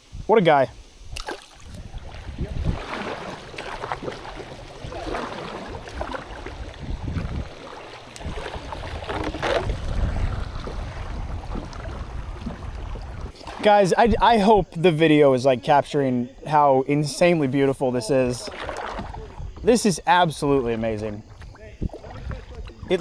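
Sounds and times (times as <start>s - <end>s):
wind gusts on microphone: 0.0s - 14.8s, 17.4s - 23.0s
water sloshing around a kayak: 0.9s - 14.1s, 17.1s - 23.0s.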